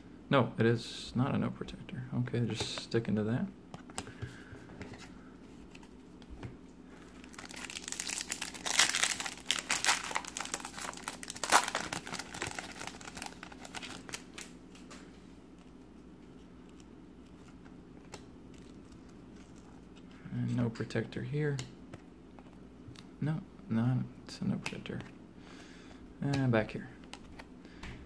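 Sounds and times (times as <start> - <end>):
foil wrapper tearing and crinkling: 7.2 - 14.5.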